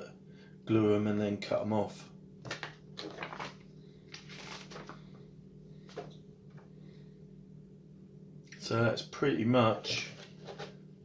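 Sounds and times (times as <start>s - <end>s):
steady low hum: 0.0s - 11.0s
paper pages rustling: 2.5s - 5.2s.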